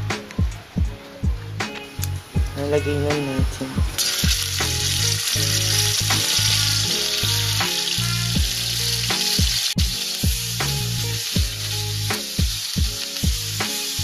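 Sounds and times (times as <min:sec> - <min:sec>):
background music with steady beat: 0:00.0 - 0:14.0
chicken sizzling in hot oil: 0:03.9 - 0:14.0.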